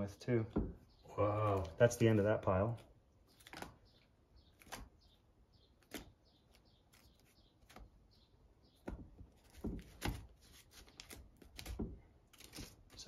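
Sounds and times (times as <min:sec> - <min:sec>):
paper bills rustling: 0:09.4 - 0:13.0.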